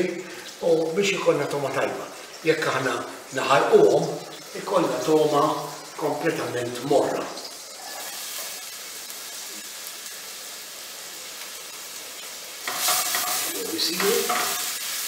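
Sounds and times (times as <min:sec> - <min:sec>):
vegetables sizzling in a frying pan: 0:00.0 - 0:15.0
spatula stirring in a pan: 0:12.2 - 0:15.0.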